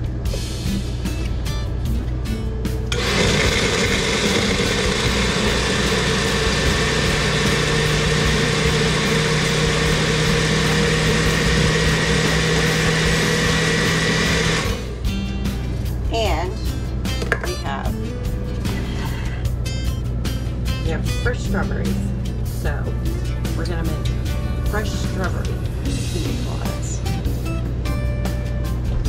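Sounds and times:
electric blender running: 2.9 - 15.0.

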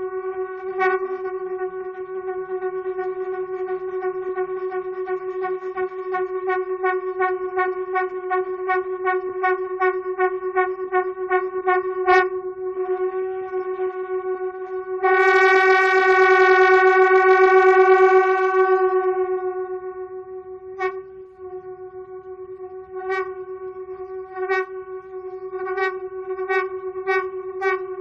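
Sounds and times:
conch shells blowing: 20.6 - 27.9.

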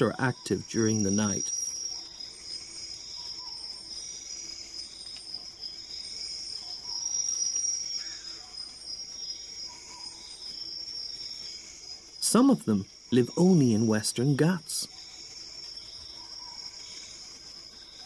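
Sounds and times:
crickets trilling: 0.0 - 18.0
short insect calls: 0.0 - 18.0.

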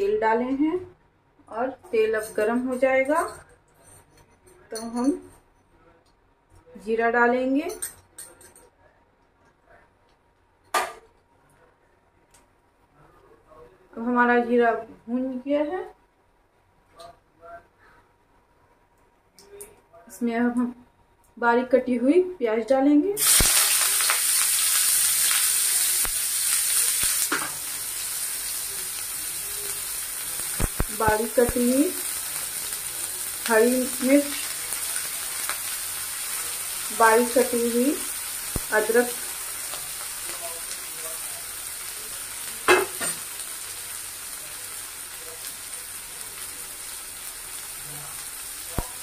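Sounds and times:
onions sizzling in hot oil: 23.2 - 49.0.

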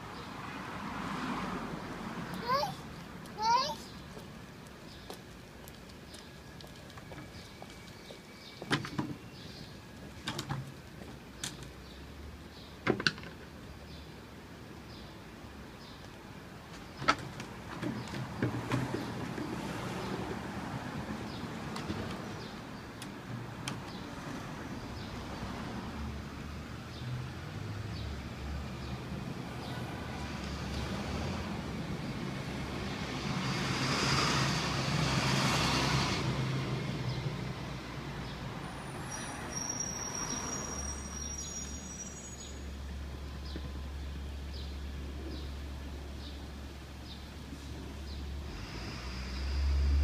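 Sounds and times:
vehicle passing: 0.0 - 3.9, 23.4 - 39.5, 48.1 - 50.0
traffic rumble: 0.0 - 50.0.

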